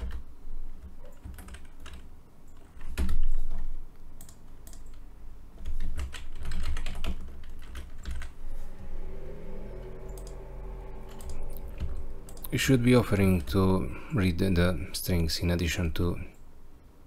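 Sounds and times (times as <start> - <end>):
computer keyboard typing: 0.0 - 5.0, 5.6 - 8.3.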